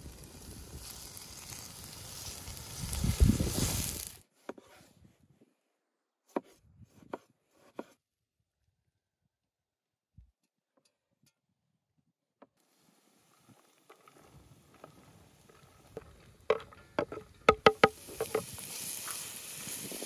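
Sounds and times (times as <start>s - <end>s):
wood fire hissing and crackling: 0.0s - 4.2s, 12.6s - 20.0s.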